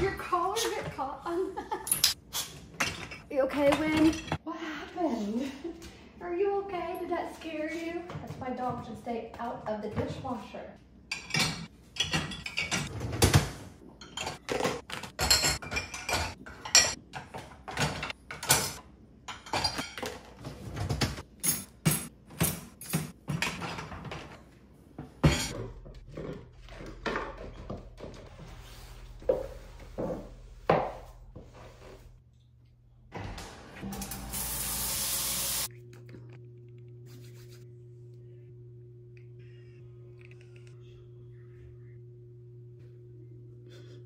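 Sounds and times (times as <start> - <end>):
dishes and cutlery clattering: 11.1 - 24.4
low steady hum: 35.7 - 44.0.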